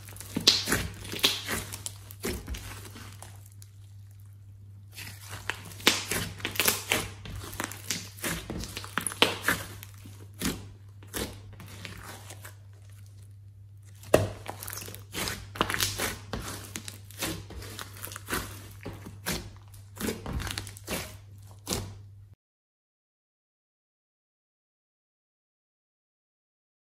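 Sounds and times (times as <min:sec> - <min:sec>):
steady low hum: 0:00.0 - 0:22.4
slime sticky pops and crackles: 0:00.1 - 0:02.7, 0:05.3 - 0:09.8, 0:14.0 - 0:17.3.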